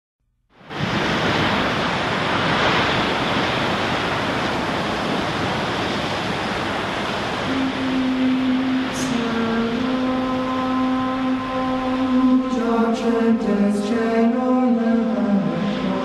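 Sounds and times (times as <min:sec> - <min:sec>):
ocean surf rushing: 0:00.6 - 0:16.0
low steady tone: 0:07.4 - 0:16.0.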